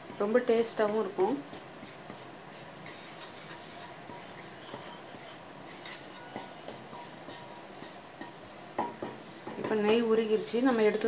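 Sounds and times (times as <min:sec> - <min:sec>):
wooden spatula scraping pan: 0:00.0 - 0:08.4.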